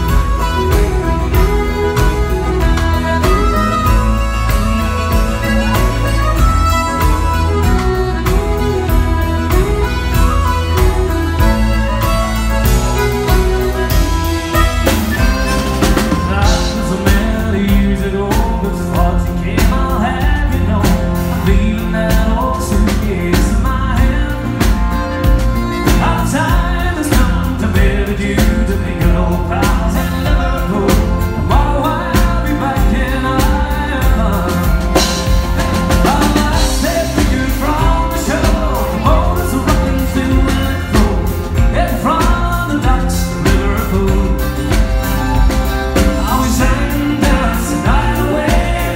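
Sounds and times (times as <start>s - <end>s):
steady beat: 0.0s - 21.6s, 30.9s - 48.9s
acoustic guitar: 0.0s - 48.9s
piano accordion: 0.0s - 48.9s
man singing into a microphone: 15.2s - 25.0s, 25.8s - 45.0s, 45.9s - 48.9s.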